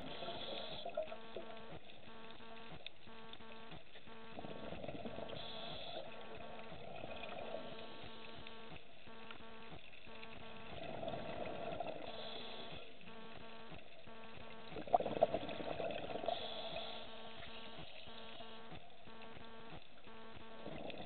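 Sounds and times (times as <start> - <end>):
steady buzzing hum: 0.0 - 21.0
underwater exhaled bubbles: 4.4 - 8.0, 10.6 - 13.0, 14.7 - 18.4, 20.6 - 21.0.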